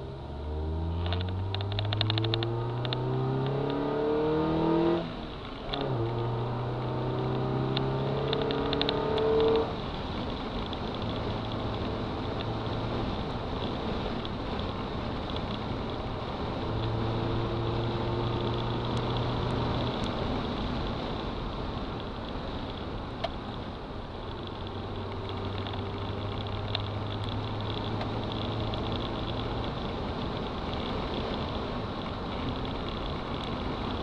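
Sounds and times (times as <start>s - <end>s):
car engine hum: 0.0s - 34.0s
road noise: 0.0s - 34.0s.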